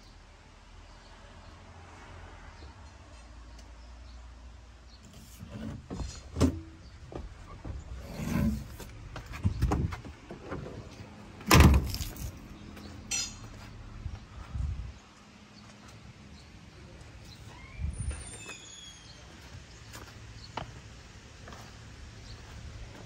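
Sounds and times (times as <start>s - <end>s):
knocks and clunks climbing down: 5.1s - 12.3s.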